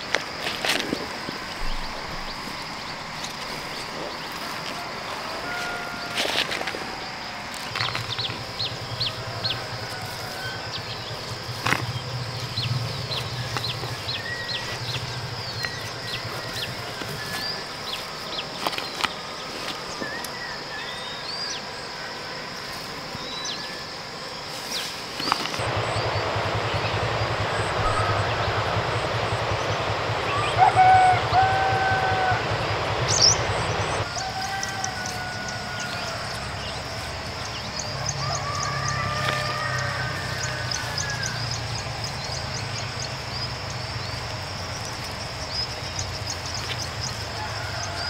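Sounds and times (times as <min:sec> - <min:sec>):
birds chirping: 0:00.0 - 0:48.0
insect buzz: 0:00.0 - 0:48.0
low hum: 0:06.8 - 0:18.6, 0:25.6 - 0:48.0.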